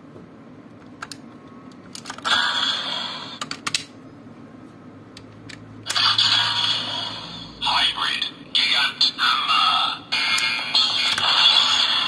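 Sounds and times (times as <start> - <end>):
plastic toy clicks and snaps: 3.4 - 3.9.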